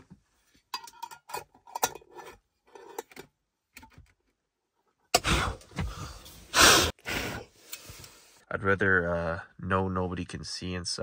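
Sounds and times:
puffs of breath blowing: 5.2s - 8.4s.

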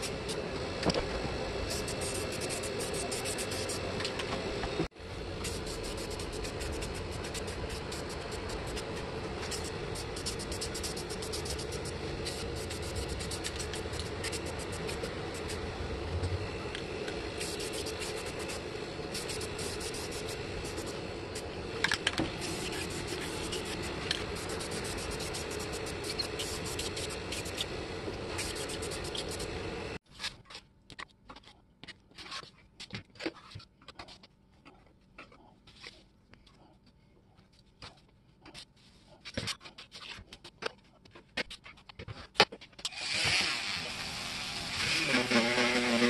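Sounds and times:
aerosol spray can hissing: 1.6s - 3.8s, 5.4s - 15.6s, 17.3s - 21.5s, 22.2s - 29.8s.

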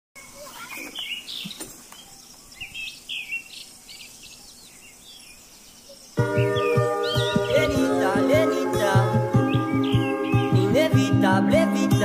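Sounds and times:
faint hiss: 0.2s - 6.3s
birds chirping: 0.2s - 12.0s.

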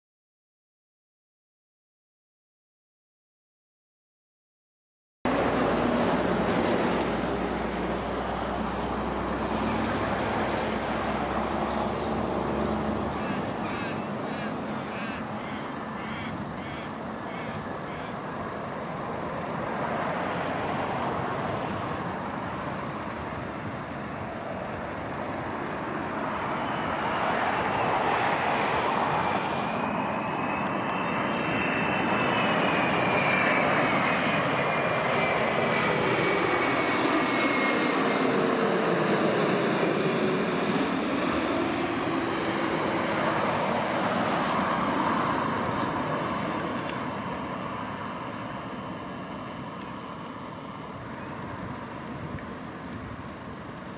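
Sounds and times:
high engine whine: 5.3s - 53.9s
jet engine rumble: 5.3s - 53.9s.

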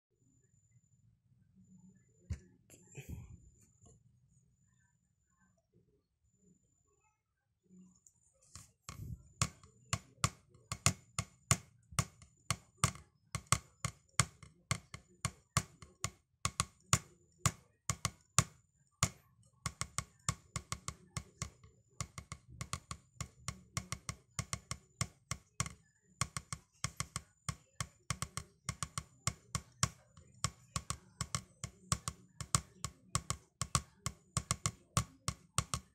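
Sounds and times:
drumsticks tapping practice pad: 8.9s - 35.9s.

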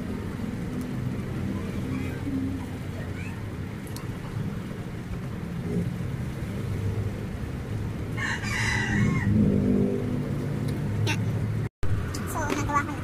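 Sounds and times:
rooster crowing: 8.2s - 9.6s.

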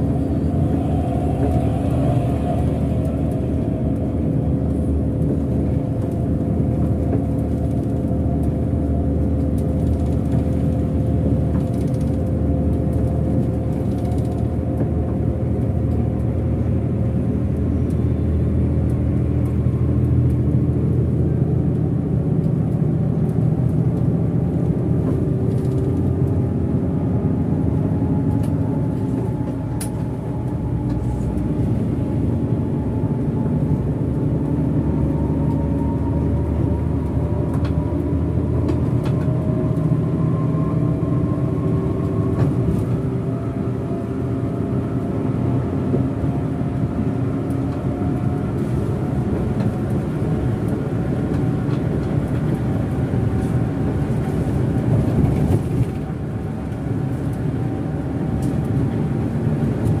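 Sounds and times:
bus diesel engine pulling: 0.0s - 60.0s
tyre and road noise: 0.0s - 60.0s.

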